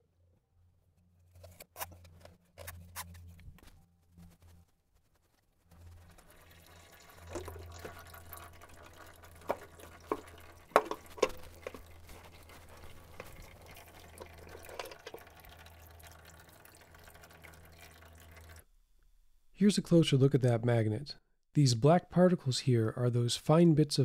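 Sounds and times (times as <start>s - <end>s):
low steady hum: 0.0s - 21.3s
fluid dripping: 5.8s - 18.7s.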